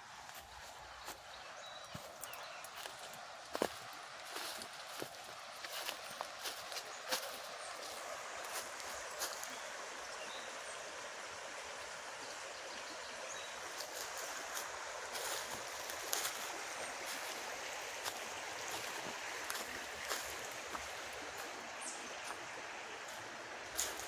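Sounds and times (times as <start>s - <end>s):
river rushing over rocks: 13.4s - 24.0s.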